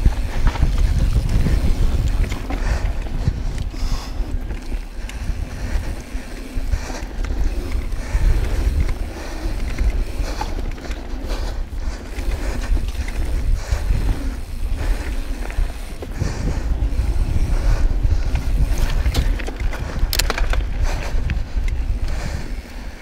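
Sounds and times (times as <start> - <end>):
bike rattles and knocks: 0.0 - 23.0
bike tyre noise on dirt trail: 0.0 - 23.0
wind buffeting microphone: 0.0 - 23.0.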